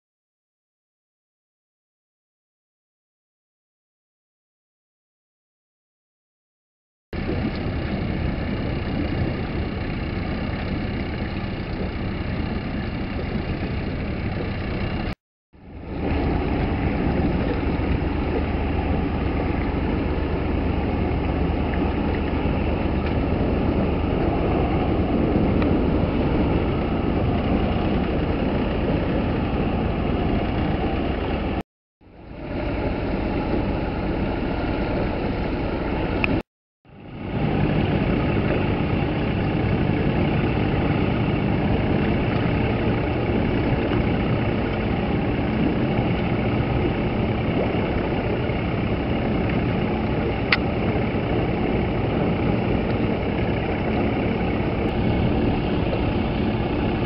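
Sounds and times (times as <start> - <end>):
boat engine rumbling: 7.2 - 57.0.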